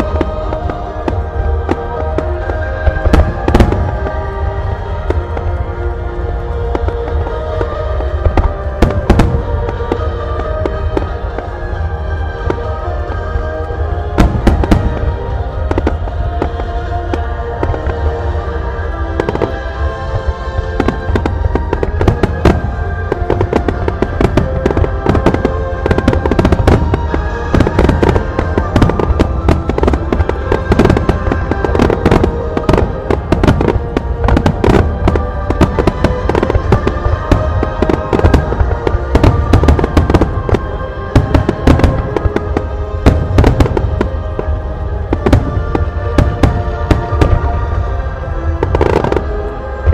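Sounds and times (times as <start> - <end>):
fireworks cracking and booming: 0.0 - 49.9
music playing: 0.0 - 49.9.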